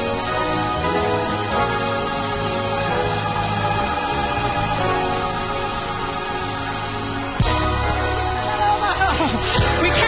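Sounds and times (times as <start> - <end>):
sustained keyboard chords: 0.0 - 10.0
low bass note: 2.2 - 8.4.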